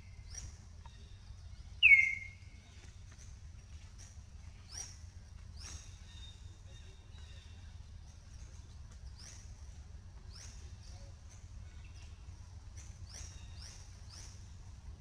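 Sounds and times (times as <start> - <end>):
low outdoor rumble: 0.0 - 15.0
high animal chirps: 1.8 - 2.4.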